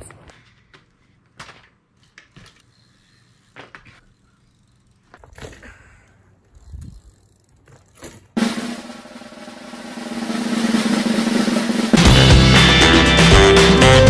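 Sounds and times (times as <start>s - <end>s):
bike clicks and knocks: 0.0s - 2.8s, 3.4s - 8.4s.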